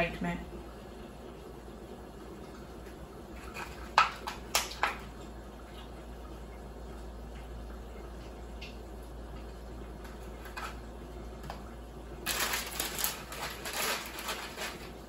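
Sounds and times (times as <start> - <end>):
crinkling rustle: 12.2 - 15.0.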